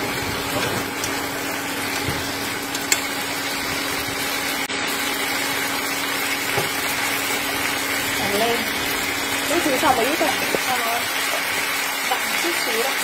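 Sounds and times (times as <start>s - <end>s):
cooktop hum: 0.0s - 13.0s
sauce bubbling and sizzling in pan: 0.0s - 13.0s.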